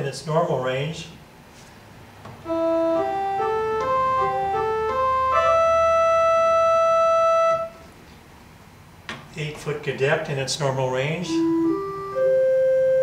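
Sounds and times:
organ solo melody: 0:02.4 - 0:07.9, 0:11.0 - 0:13.0.

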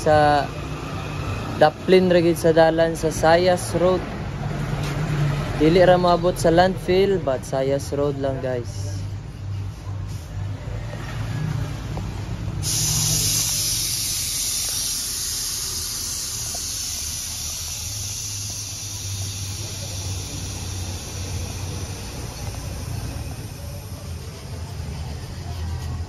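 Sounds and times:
gas hissing through hoses: 0:08.9 - 0:26.0.

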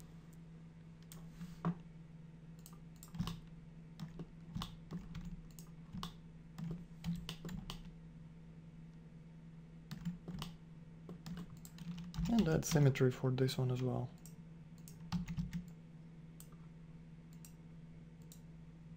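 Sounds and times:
steady low hum: 0:00.0 - 0:18.9
keyboard keys clicking: 0:02.6 - 0:03.4.

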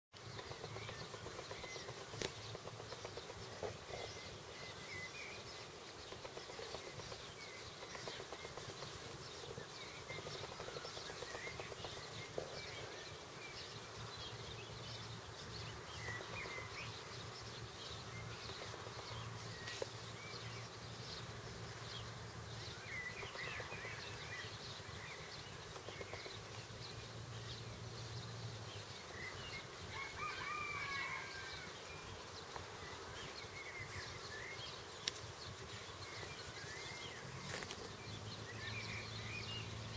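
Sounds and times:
sharp clicks: 0:00.2 - 0:03.7.

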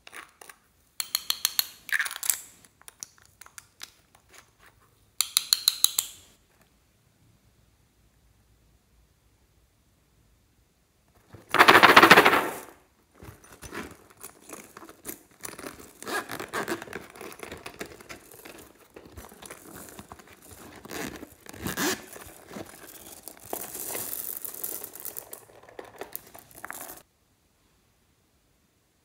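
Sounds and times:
beads spilling out: 0:11.5 - 0:12.8, 0:19.3 - 0:27.0
purse scratching and rustling: 0:11.5 - 0:27.0.

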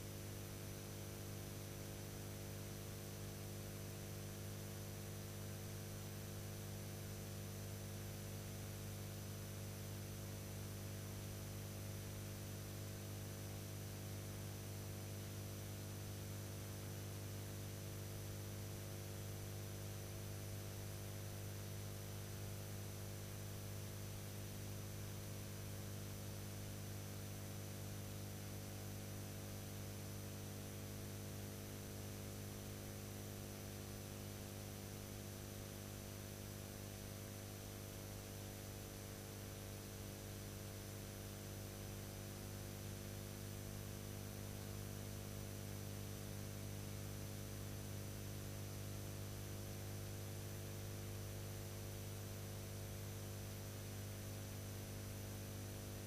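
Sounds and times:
electrical mains hum: 0:00.0 - 0:01.0.

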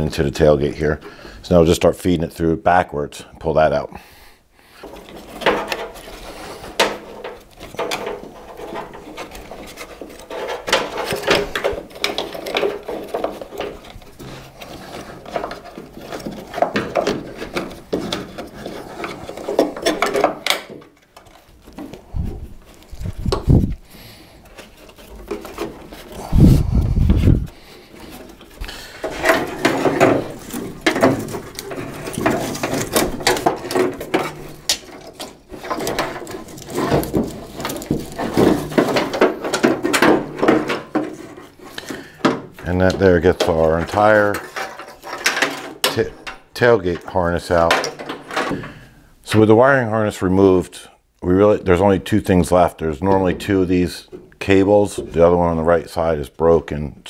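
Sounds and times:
wires scraping against metal: 0:04.7 - 0:49.6
low thumps: 0:26.2 - 0:27.6.

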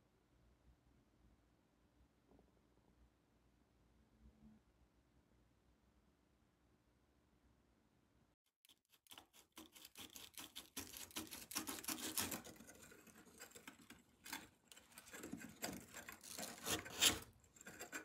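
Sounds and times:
scratching on a hard surface: 0:08.6 - 0:18.0.

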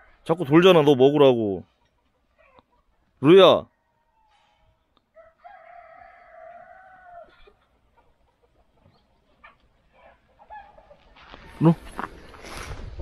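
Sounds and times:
rooster crowing: 0:05.1 - 0:07.4.

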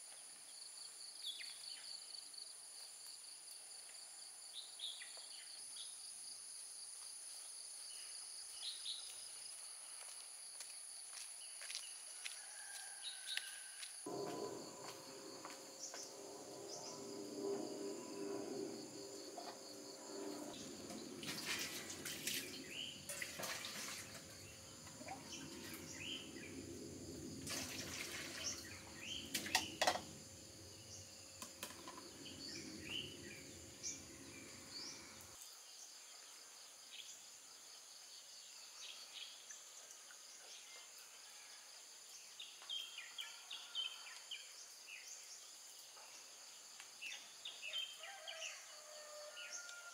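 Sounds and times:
high insect buzz: 0:14.0 - 0:35.8
metal bowls clattering: 0:14.1 - 0:26.0, 0:27.4 - 0:30.2
water splashing into steel basins: 0:20.0 - 0:30.2.

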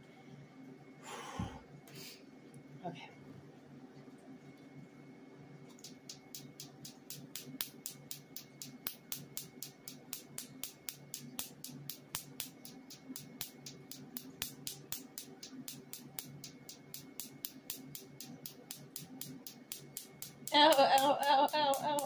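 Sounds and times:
steady low hum: 0:00.0 - 0:22.0
laser snapping clicks: 0:05.7 - 0:22.0.

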